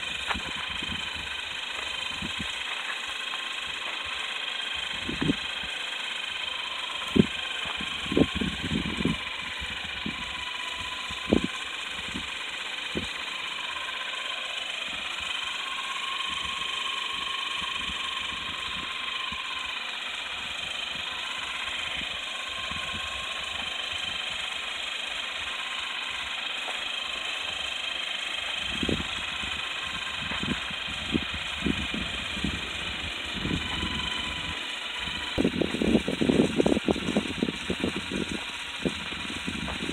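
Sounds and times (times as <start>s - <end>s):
small electric motors whining: 0.0s - 39.9s.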